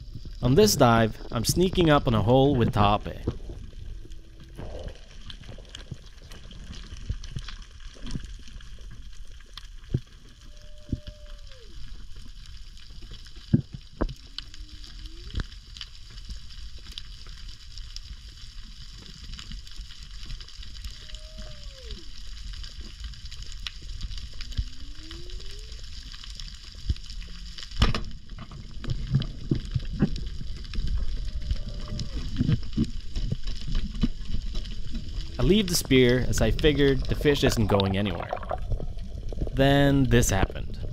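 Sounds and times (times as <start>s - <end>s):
low rumbling movement: 28.2s - 40.9s.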